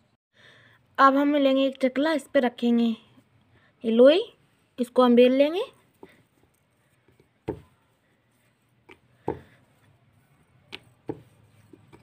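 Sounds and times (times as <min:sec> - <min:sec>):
rolling pin rolling dough: 0:04.4 - 0:12.0
rolling pin knocking on board: 0:07.4 - 0:07.6, 0:10.7 - 0:12.0.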